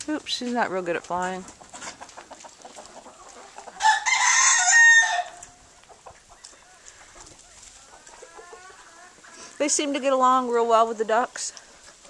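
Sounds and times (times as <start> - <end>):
chickens clucking: 0.0 - 12.0
rooster crowing: 3.7 - 5.5.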